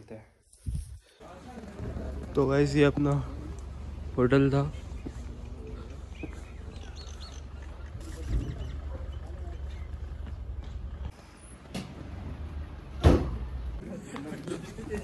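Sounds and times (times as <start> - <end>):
low outdoor rumble: 1.2 - 14.1
small birds chirping: 3.3 - 11.1.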